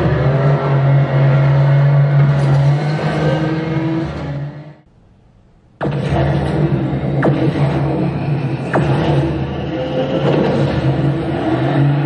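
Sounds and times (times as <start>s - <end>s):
game car engine drone through speakers: 0.0s - 4.9s, 5.8s - 12.0s.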